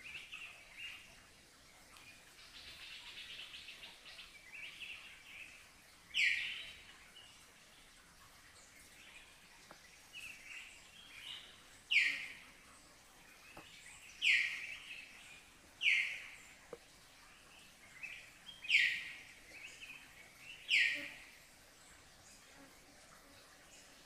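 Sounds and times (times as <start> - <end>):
faint steady hiss: 0.0 - 24.0.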